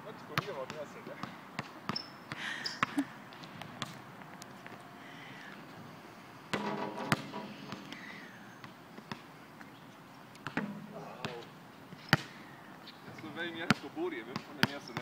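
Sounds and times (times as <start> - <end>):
basketball bouncing on hard court: 6.5 - 8.0.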